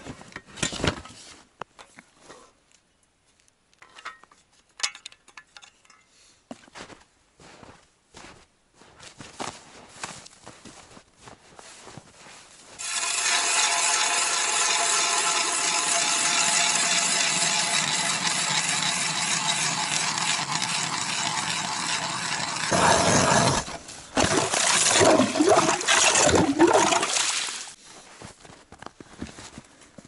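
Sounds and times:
ice auger grinding ice: 12.7 - 27.6.

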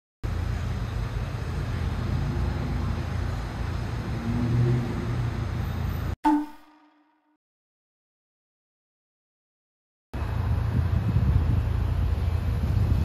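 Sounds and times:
short ringing tone: 6.2 - 7.4.

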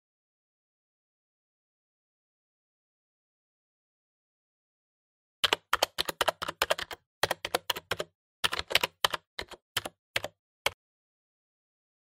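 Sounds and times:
keyboard typing clicks: 5.4 - 10.8.

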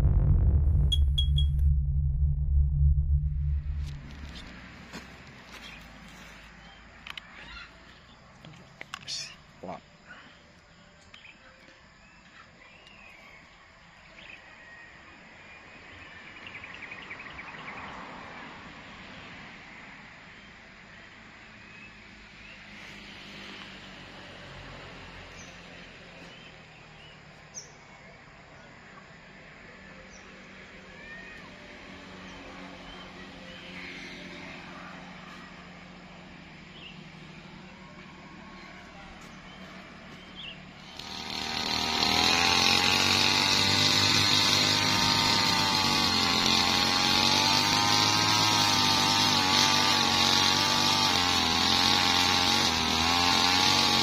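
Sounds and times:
faint engine drone: 0.0 - 6.8, 20.9 - 41.0
short high chirps: 0.7 - 4.4
birds chirping: 35.3 - 41.0.

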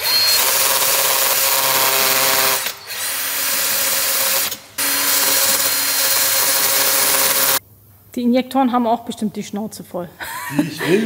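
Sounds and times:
cordless drill running: 0.0 - 7.6.

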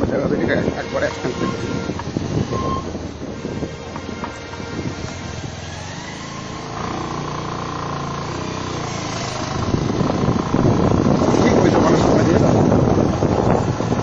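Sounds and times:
engine running: 3.4 - 14.0.

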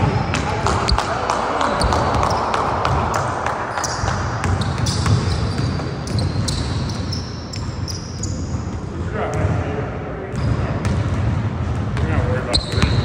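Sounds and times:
sneakers squeaking: 0.0 - 9.6, 10.3 - 13.0
basketball bouncing on gym floor: 0.0 - 9.7, 10.3 - 13.0.

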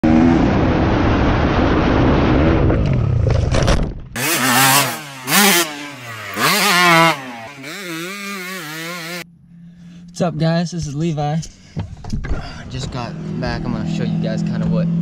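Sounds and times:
sharp engine revs: 4.2 - 9.2
motorbike engine at full throttle: 4.2 - 9.3, 11.8 - 15.0.

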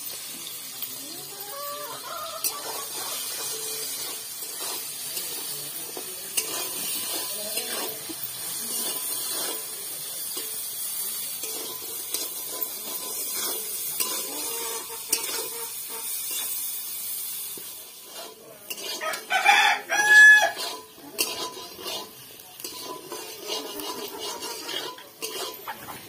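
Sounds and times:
metal spatula scraping a pan: 0.1 - 26.0
rooster crowing: 1.3 - 2.9, 19.0 - 20.6.

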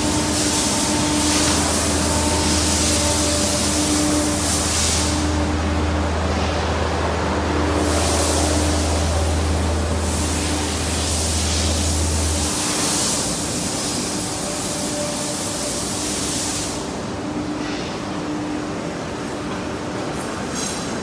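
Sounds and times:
machine noise: 0.0 - 21.0
steady hiss: 7.7 - 17.2.

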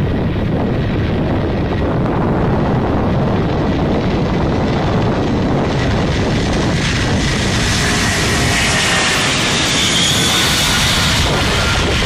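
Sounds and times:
deep jet engine noise: 0.0 - 12.0.

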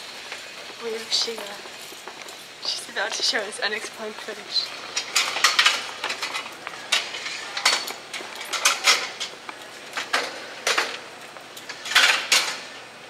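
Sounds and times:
hard objects clattering and scraping: 4.3 - 12.8.

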